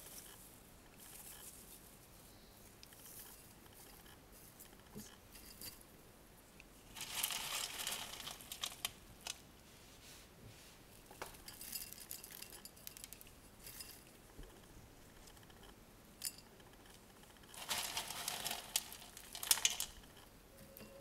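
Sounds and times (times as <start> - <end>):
moss rustling and crackling: 6.9 - 10.8, 17.5 - 19.9.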